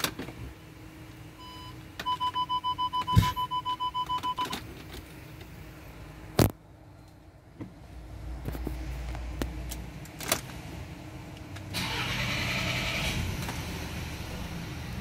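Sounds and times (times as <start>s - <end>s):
warning chime beeps: 1.4s - 4.5s.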